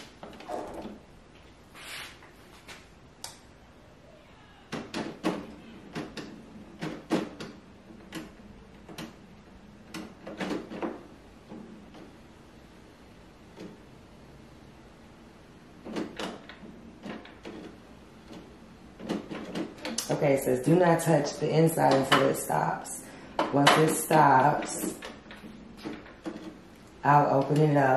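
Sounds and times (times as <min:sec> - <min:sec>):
printer mechanism clicks and clunks: 0:04.7 - 0:12.2, 0:15.8 - 0:22.6.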